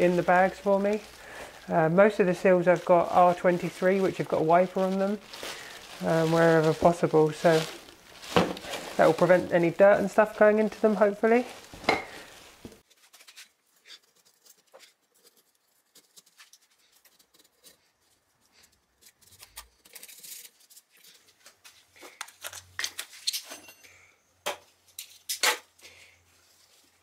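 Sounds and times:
plastic bags rustling: 0:00.0 - 0:14.0.

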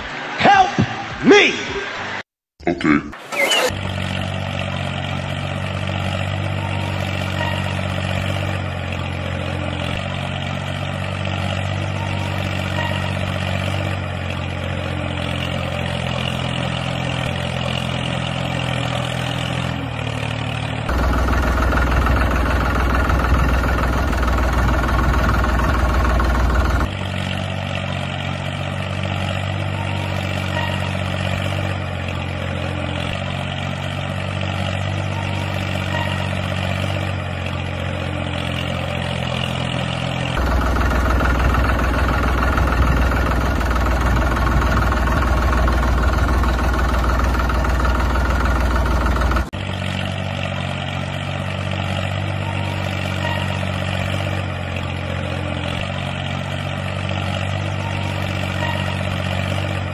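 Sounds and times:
engine running steadily: 0:03.7 - 0:59.9.

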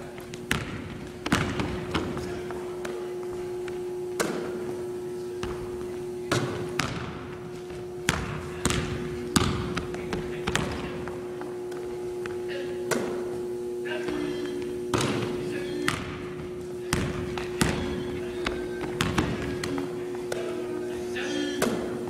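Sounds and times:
steady hum: 0:00.0 - 0:22.0
basketball bouncing on wooden floor: 0:00.3 - 0:02.2, 0:06.4 - 0:07.1, 0:07.7 - 0:10.9, 0:16.9 - 0:19.8.

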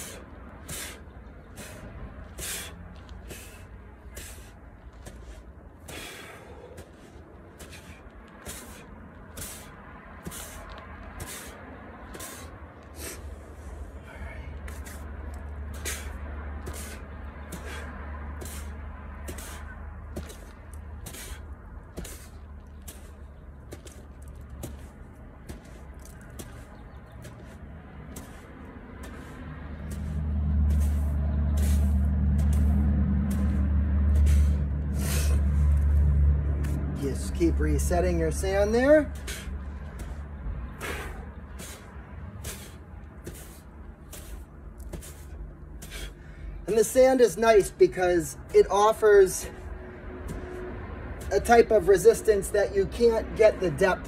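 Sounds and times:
engine running low: 0:00.0 - 0:47.0, 0:47.6 - 0:54.0
fingers swishing in dry sand: 0:24.6 - 0:35.3.

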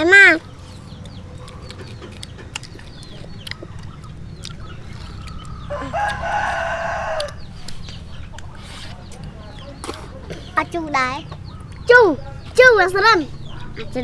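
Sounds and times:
chickens clucking: 0:00.0 - 0:14.0
rooster crowing: 0:05.6 - 0:07.5.

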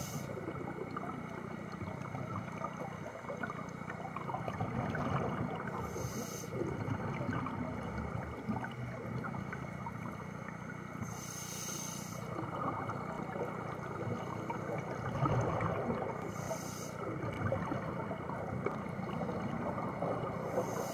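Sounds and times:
regulator inhalation hiss: 0:00.0 - 0:00.4, 0:05.8 - 0:06.6, 0:11.0 - 0:12.3, 0:16.3 - 0:17.1, 0:20.5 - 0:20.9
exhaled bubbles rumbling: 0:00.0 - 0:11.0, 0:12.3 - 0:20.9
underwater crackle: 0:00.0 - 0:20.9.

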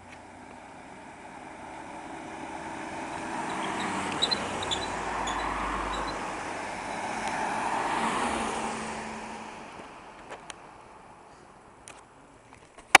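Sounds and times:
car passing by: 0:00.0 - 0:11.4.

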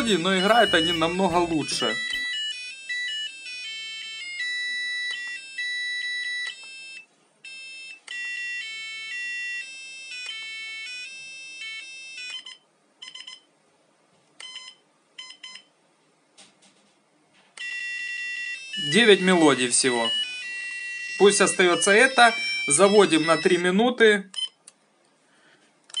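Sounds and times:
electronic alarm melody beeping: 0:00.0 - 0:13.4, 0:17.6 - 0:23.7.

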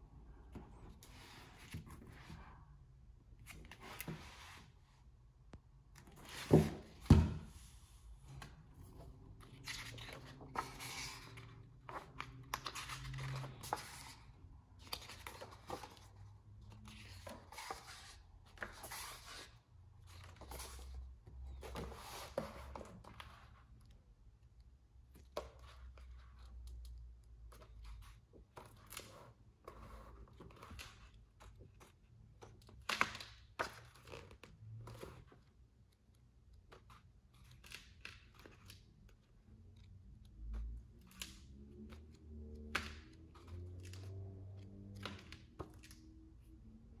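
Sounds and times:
book pages rustling: 0:00.5 - 0:02.6, 0:03.4 - 0:04.8, 0:06.0 - 0:23.7.

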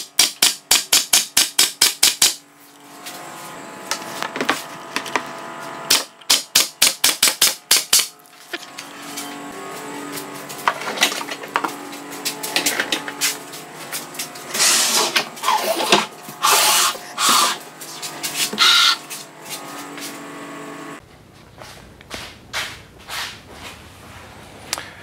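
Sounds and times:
cabinet scraping across wood: 0:08.9 - 0:20.2.

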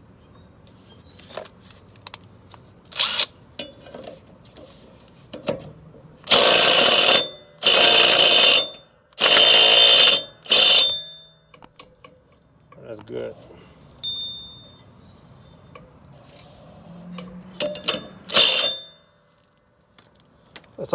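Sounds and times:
impact driver hammering: 0:06.3 - 0:11.1.

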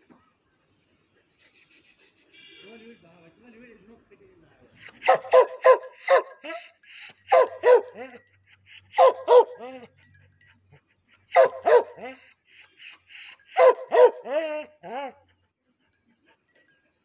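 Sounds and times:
large dog barking: 0:05.0 - 0:06.6, 0:07.2 - 0:08.2, 0:08.9 - 0:09.9, 0:11.3 - 0:12.3, 0:13.4 - 0:15.2.

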